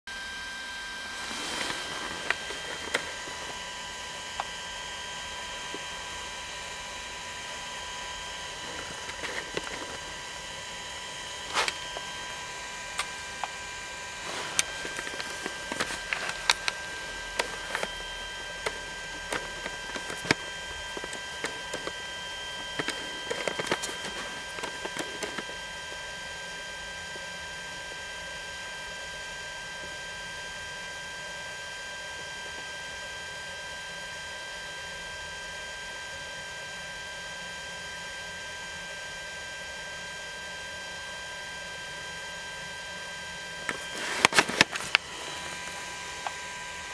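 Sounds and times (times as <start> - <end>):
electrical hum: 0.1 - 32.6, 42.1 - 46.9
clicks and taps of handling: 14.3 - 18.0, 18.6 - 21.9, 22.7 - 25.6.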